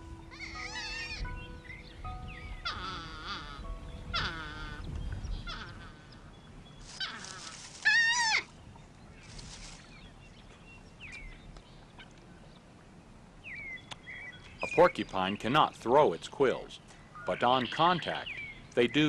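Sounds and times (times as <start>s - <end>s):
porcupines whining calls: 0.0s - 8.6s.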